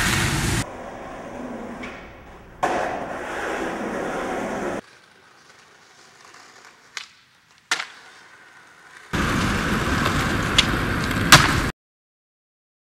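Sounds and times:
skateboard wheels rolling on concrete: 0.0 - 11.7
skateboard clacks: 1.7 - 11.7
skateboard landing smack: 1.8 - 3.1, 6.9 - 8.0, 10.0 - 11.7
skateboard pop: 6.6 - 8.2, 8.9 - 11.7.

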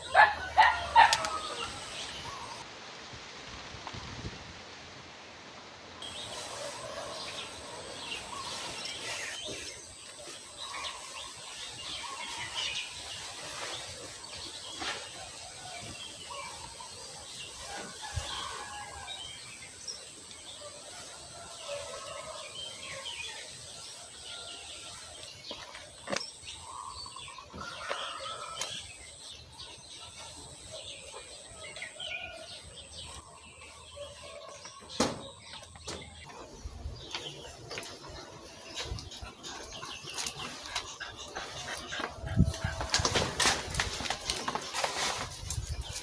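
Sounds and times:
birds chirping: 0.0 - 2.6, 21.7 - 46.0.

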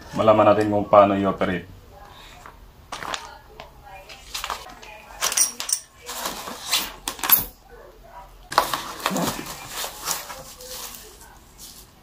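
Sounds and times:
plastic and foam packaging rustling: 2.4 - 7.6, 8.5 - 12.0.

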